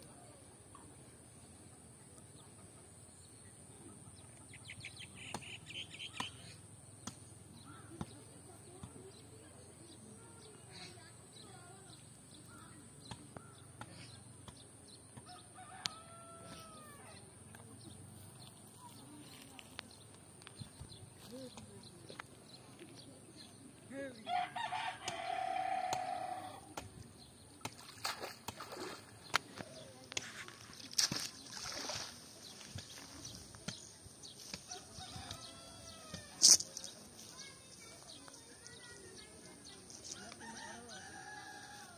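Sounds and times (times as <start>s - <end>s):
birds calling faintly: 2.0s - 41.9s
faint rooster crowing: 15.2s - 17.2s, 34.7s - 36.6s, 40.1s - 41.9s
water splashing and dripping: 27.6s - 33.2s.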